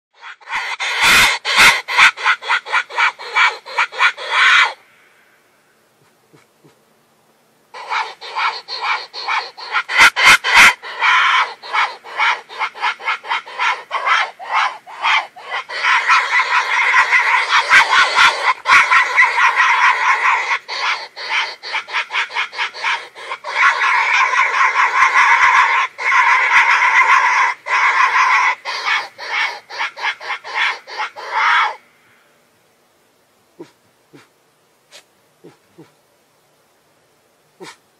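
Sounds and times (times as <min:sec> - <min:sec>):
wild boar pulsing calls: 0:00.2 - 0:04.9, 0:06.3 - 0:06.8, 0:07.7 - 0:31.9, 0:33.6 - 0:36.0, 0:37.6 - 0:37.9.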